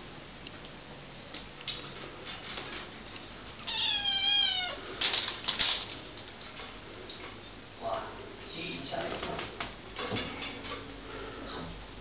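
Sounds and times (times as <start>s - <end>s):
kitten meowing: 3.6s - 4.8s.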